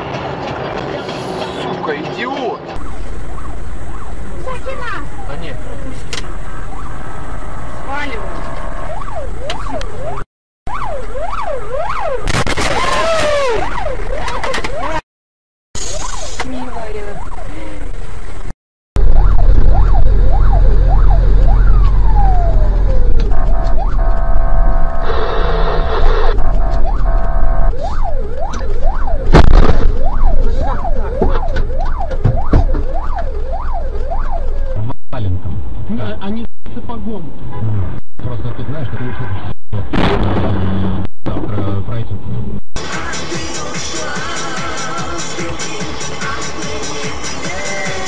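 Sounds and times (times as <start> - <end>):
siren wailing: 2.6 - 15.0, 15.8 - 17.8, 19.0 - 34.9
loud bang: 12.2 - 13.5, 29.3 - 30.1, 39.7 - 41.7.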